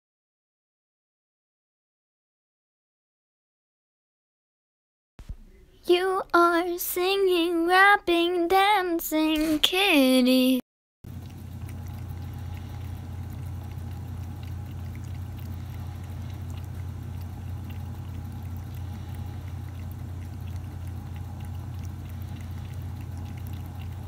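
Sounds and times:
cat lapping water: 0:11.1 - 0:24.0
steady low hum: 0:11.1 - 0:24.0.

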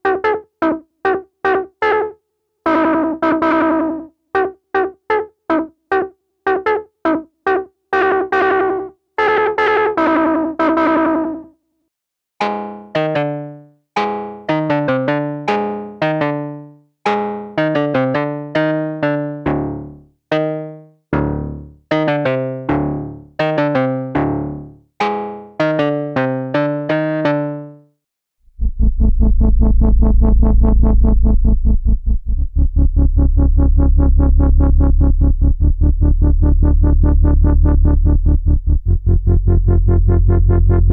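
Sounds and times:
synthesizer keys notes and chords: 0:02.7 - 0:11.4, 0:12.4 - 0:27.9, 0:33.0 - 0:40.9
synthesizer bass: 0:17.6 - 0:24.8, 0:28.6 - 0:40.9.

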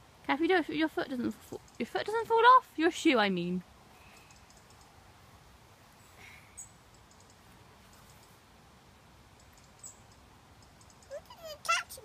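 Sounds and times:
faint outdoor hiss: 0:00.0 - 0:12.0
faint rapid ticks: 0:01.5 - 0:02.1, 0:04.2 - 0:05.0, 0:06.9 - 0:08.2, 0:09.4 - 0:11.2.

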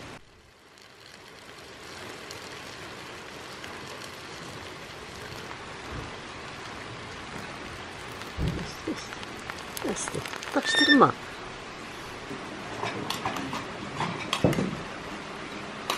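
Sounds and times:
water trickling into a jar: 0:06.6 - 0:11.2.

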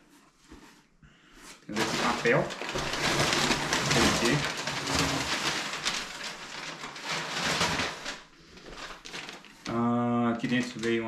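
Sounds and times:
packing paper rustling: 0:01.7 - 0:11.0.

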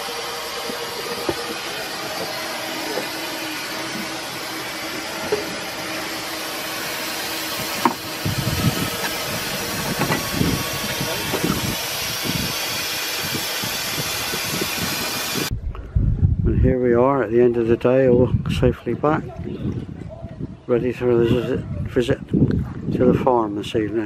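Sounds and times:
steam engine hissing: 0:00.0 - 0:15.5.

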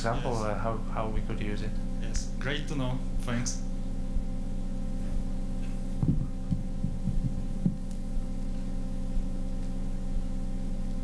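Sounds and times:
low electrical hum: 0:00.0 - 0:11.0
soft low thumps: 0:05.0 - 0:09.4.

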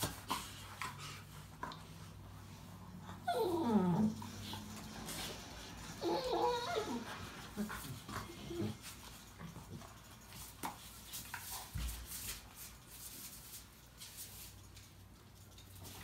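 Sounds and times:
dogs high-pitched vocal sounds: 0:03.1 - 0:04.7, 0:06.0 - 0:08.8.

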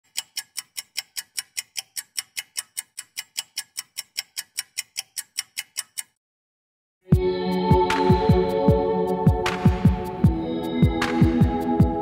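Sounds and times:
rapid clock-like ticking: 0:00.0 - 0:06.2.

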